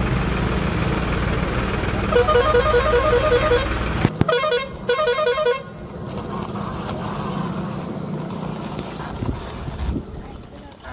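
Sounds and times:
engine rumble: 0:00.0 - 0:10.9
vehicle horn musical tune: 0:02.1 - 0:05.8.

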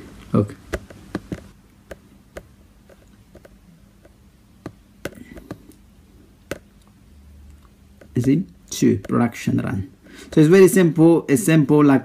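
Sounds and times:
laptop clicks and taps: 0:00.7 - 0:05.8, 0:06.5 - 0:06.7, 0:09.0 - 0:09.2.

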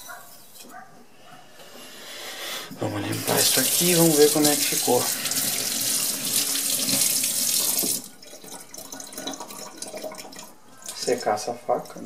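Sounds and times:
tap water splashing into sink: 0:03.4 - 0:12.0.

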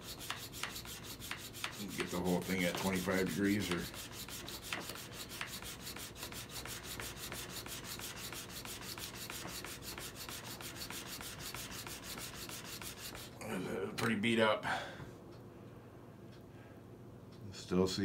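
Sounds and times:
sharpening stone rasping on chisel: 0:00.0 - 0:13.3.

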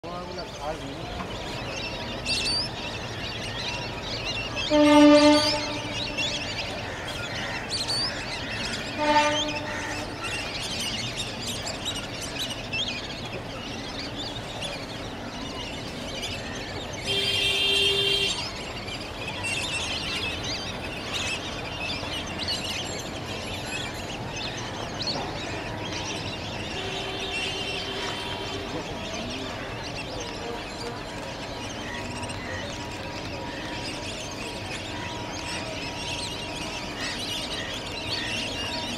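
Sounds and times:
ducks whistling calls: 0:02.3 - 0:12.9
train horn: 0:04.6 - 0:06.4, 0:09.0 - 0:10.0.

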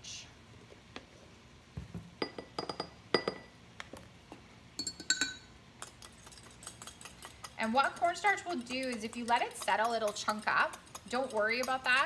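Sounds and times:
spoon clinking glass bowl: 0:04.8 - 0:11.9.

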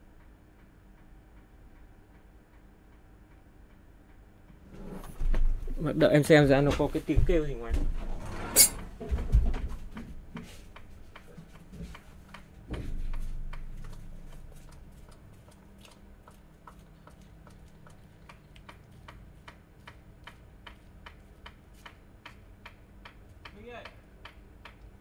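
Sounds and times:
steady regular ticking: 0:00.1 - 0:04.6, 0:09.9 - 0:25.0.

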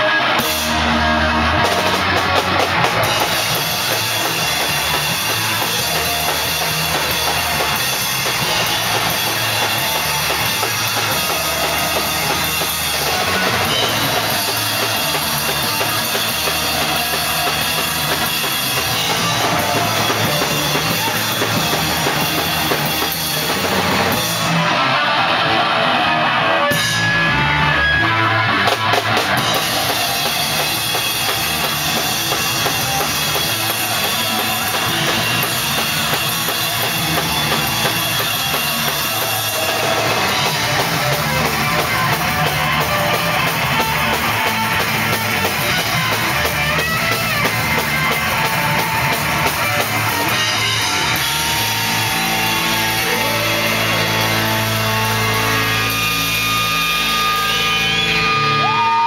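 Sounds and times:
loud drums and cymbals: 0:00.0 - 0:59.0
metal band playing live: 0:00.0 - 0:59.0.

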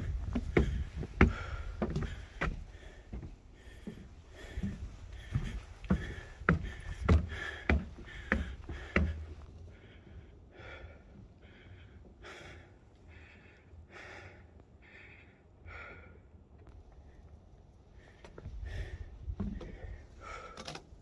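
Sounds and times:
person breathing hard: 0:00.0 - 0:16.4, 0:17.9 - 0:20.9.

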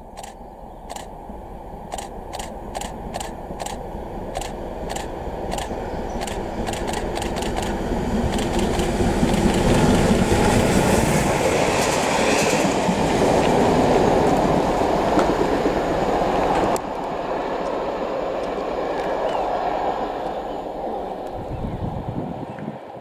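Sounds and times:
steam train wheels clattering: 0:01.9 - 0:15.8.

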